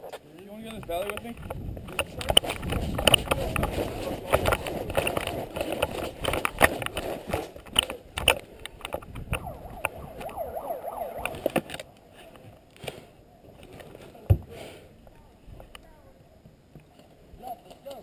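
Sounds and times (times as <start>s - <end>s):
wind on microphone: 0.8s - 7.0s, 8.9s - 12.6s.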